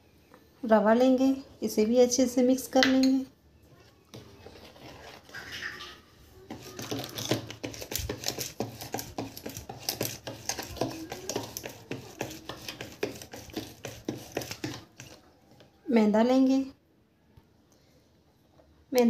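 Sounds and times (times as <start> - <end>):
whisk clicking and scraping in bowl: 4.1 - 5.9, 6.5 - 15.6.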